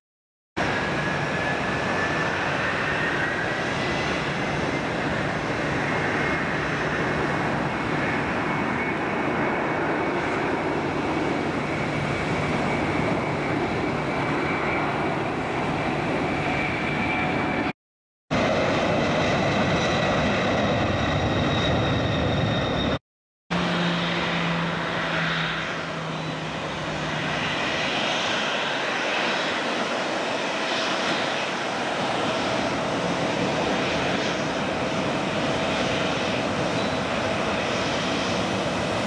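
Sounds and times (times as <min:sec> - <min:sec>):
jet engines roaring: 0:00.6 - 0:17.7, 0:18.3 - 0:39.0
faint engine whine: 0:18.4 - 0:39.0.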